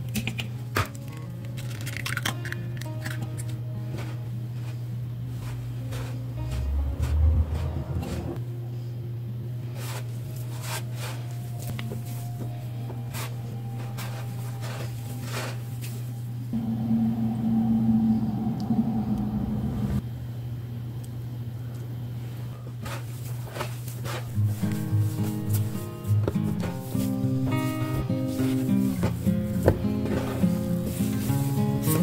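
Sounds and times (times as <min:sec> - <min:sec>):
steady low hum: 0:02.4 - 0:32.0
hands crumbling dough on board: 0:22.8 - 0:32.0.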